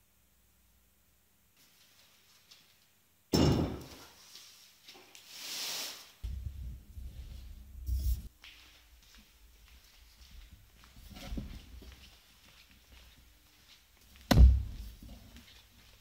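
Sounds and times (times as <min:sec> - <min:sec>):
loud knock: 0:03.3 - 0:03.9.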